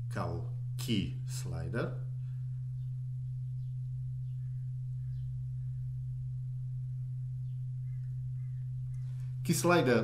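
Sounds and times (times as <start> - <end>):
low sine tone: 0.0 - 10.0.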